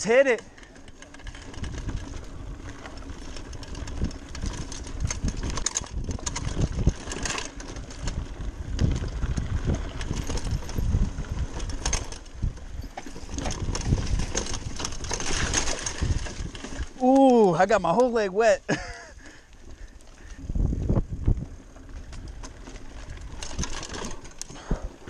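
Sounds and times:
mountain bike rattling and knocking: 0:00.0 - 0:25.0
tyres crunching over roots and stones: 0:00.7 - 0:18.3
wind rumble on microphone: 0:01.2 - 0:17.1, 0:19.6 - 0:25.0.

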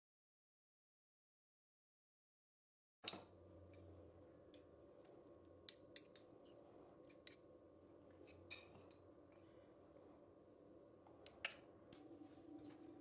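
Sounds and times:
low room hum: 0:03.1 - 0:13.0
metal spoon clicking and tapping: 0:05.6 - 0:06.3.

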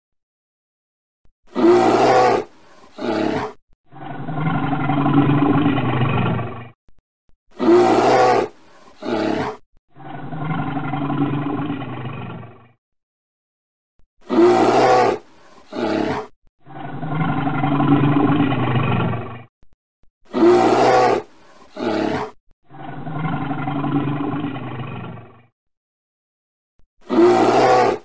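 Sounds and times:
animal roars: 0:01.5 - 0:06.8, 0:07.5 - 0:12.8, 0:14.2 - 0:19.5, 0:20.3 - 0:25.5, 0:27.0 - 0:28.0
low animal growl: 0:01.5 - 0:06.8, 0:07.5 - 0:12.8, 0:14.2 - 0:19.6, 0:20.3 - 0:25.5, 0:27.0 - 0:28.0.

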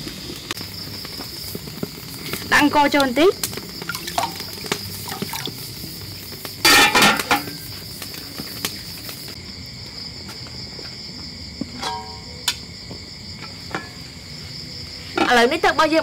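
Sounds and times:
crickets chirping: 0:00.0 - 0:16.0
pot lid clattering: 0:06.6 - 0:07.6, 0:11.8 - 0:12.2.

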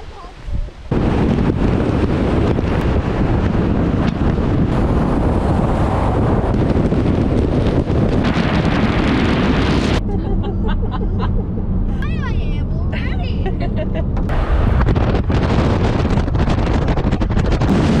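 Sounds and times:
road noise: 0:00.0 - 0:18.0
wind rushing over microphone: 0:00.0 - 0:18.0
car cabin hum: 0:10.0 - 0:14.3.

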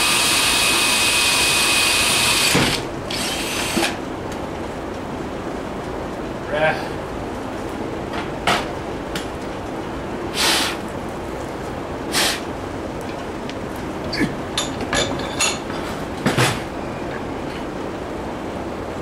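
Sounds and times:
steady hiss: 0:10.2 - 0:11.1, 0:11.8 - 0:12.7
metal clinks and knocks: 0:14.6 - 0:15.9.

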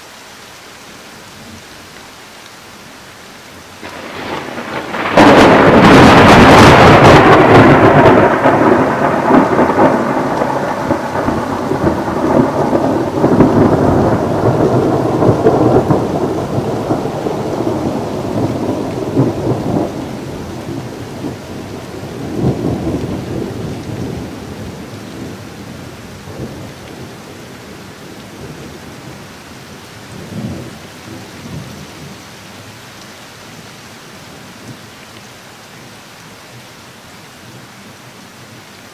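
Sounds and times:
rain falling: 0:00.0 - 0:38.9
thunderclap and rumble: 0:03.8 - 0:27.2.

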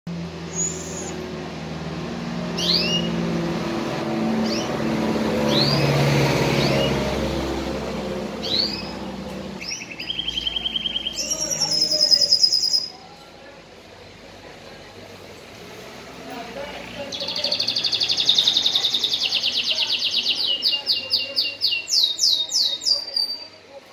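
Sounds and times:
canary chirping and trilling: 0:00.4 - 0:01.4, 0:02.4 - 0:13.0, 0:16.5 - 0:23.6.

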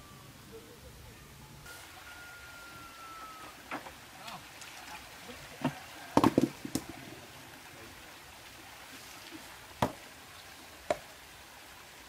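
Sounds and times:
stream flowing: 0:01.1 - 0:12.0.

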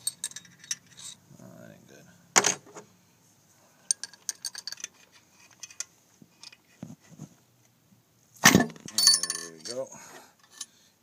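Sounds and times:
metal parts clinking: 0:00.0 - 0:01.2, 0:03.9 - 0:06.6, 0:08.6 - 0:09.8.

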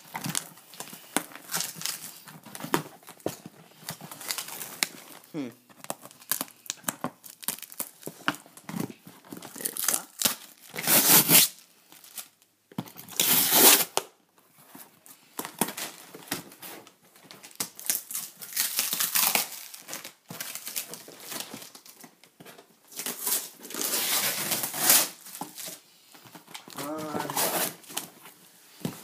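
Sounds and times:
cardboard rustling: 0:00.0 - 0:13.8, 0:19.7 - 0:29.0
packing tape ripping: 0:09.5 - 0:12.3, 0:13.0 - 0:14.1, 0:17.5 - 0:22.0, 0:22.9 - 0:25.8, 0:26.6 - 0:28.1.

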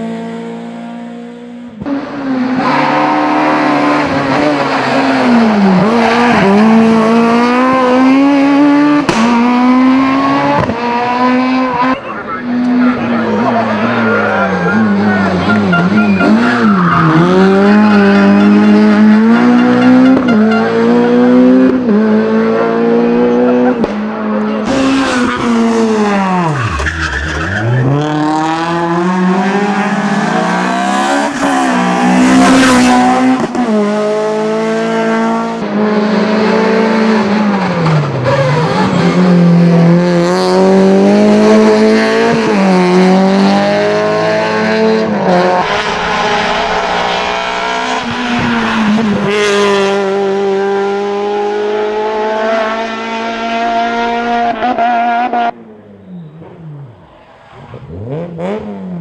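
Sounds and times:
race car engines revving: 0:00.0 - 0:59.0
tyre squeal: 0:14.1 - 0:18.8, 0:56.0 - 0:57.8.

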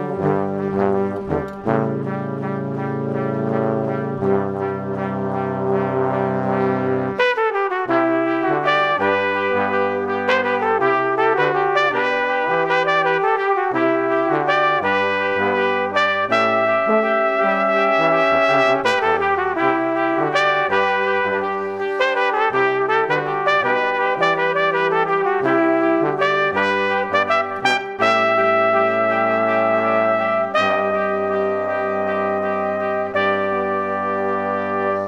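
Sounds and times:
bass line: 0:00.0 - 0:07.2, 0:07.9 - 0:35.0
brass melody: 0:00.0 - 0:35.0.

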